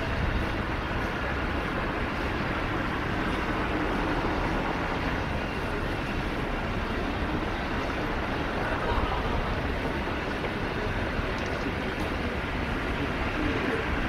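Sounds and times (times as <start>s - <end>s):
cars passing: 0.0s - 14.0s.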